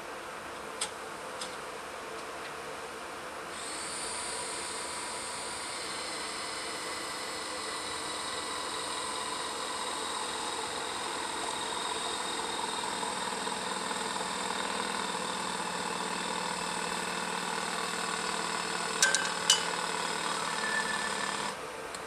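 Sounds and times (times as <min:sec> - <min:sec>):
engine idling: 0:04.2 - 0:21.5
metal tools clinking: 0:19.0 - 0:19.7.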